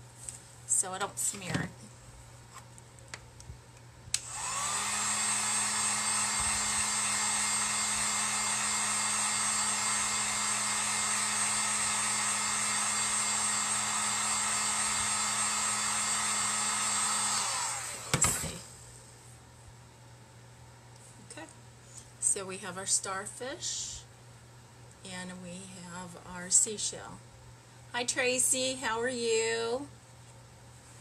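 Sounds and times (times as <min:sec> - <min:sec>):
heat gun fan whirring: 0:03.0 - 0:18.9.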